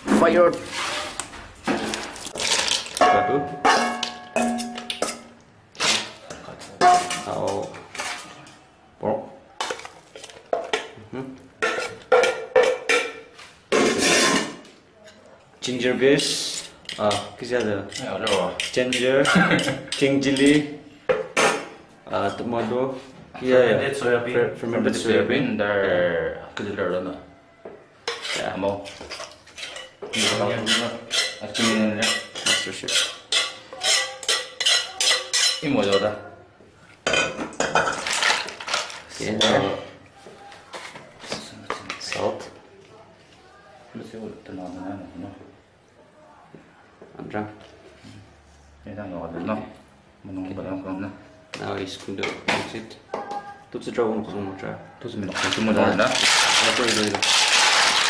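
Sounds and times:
metal spoon scraping pot: 28.1 - 36.1.

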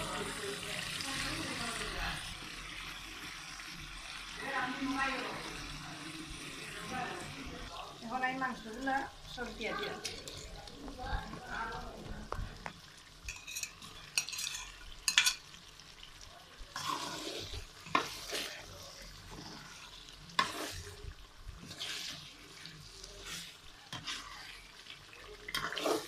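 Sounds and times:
faint frying sizzle: 0.0 - 26.0
spatula scraping metal pan: 13.3 - 15.4, 16.8 - 18.7, 19.3 - 20.9, 21.6 - 24.6, 25.5 - 26.0.

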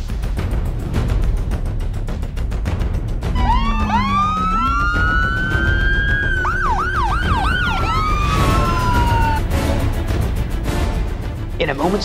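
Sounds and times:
background music: 0.0 - 12.0
ambulance siren wailing and yelping: 3.4 - 9.6.

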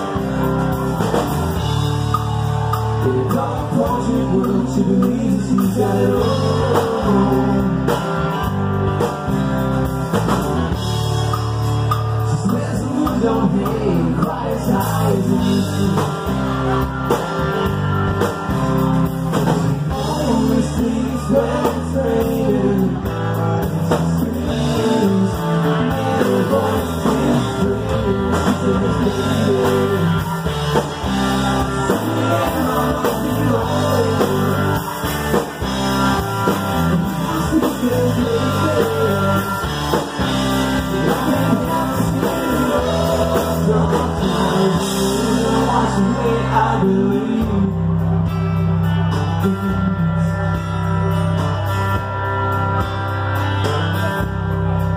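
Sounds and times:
live rock band playing: 0.0 - 54.9
man singing: 2.8 - 8.5, 12.2 - 17.6, 19.4 - 51.4.

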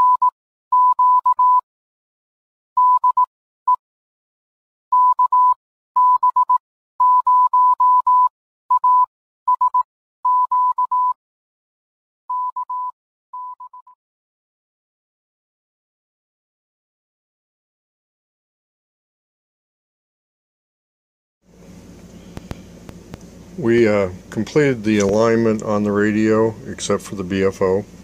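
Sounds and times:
morse code beeps: 0.0 - 1.6, 2.8 - 3.8, 4.9 - 11.2, 12.3 - 14.0.

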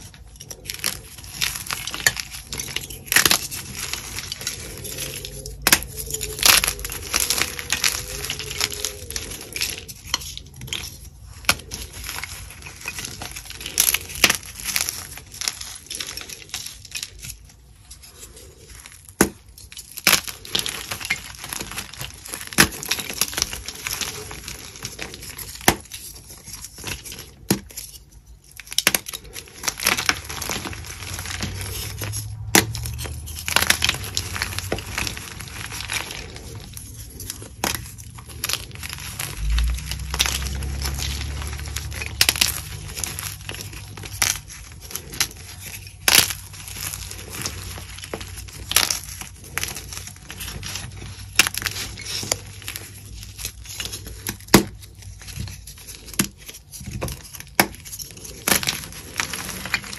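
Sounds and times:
chalk crunching between hands: 0.0 - 28.0.

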